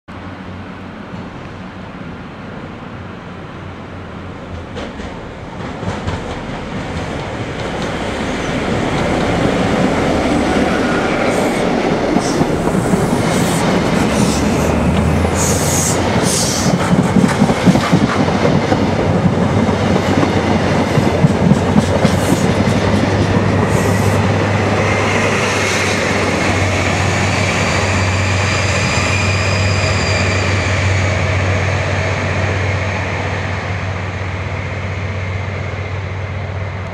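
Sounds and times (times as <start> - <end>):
train rolling rumble: 0.1 - 36.9
wheels clacking over rail joints: 4.4 - 27.6.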